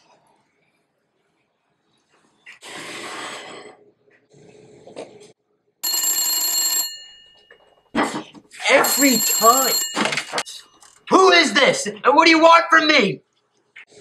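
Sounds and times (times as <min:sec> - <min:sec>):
telephone bell ringing: 0:05.8 - 0:07.7, 0:08.7 - 0:10.8.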